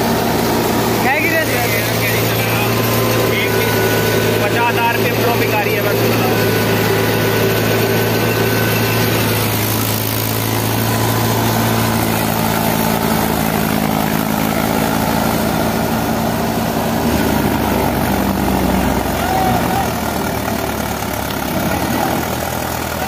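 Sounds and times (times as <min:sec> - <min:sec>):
thresher machinery running: 0:00.0 - 0:23.0
tractor diesel engine running: 0:00.0 - 0:23.0.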